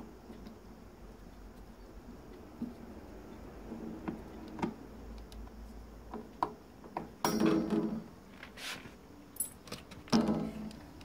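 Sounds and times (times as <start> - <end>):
light metallic clinks: 9.4 - 9.7.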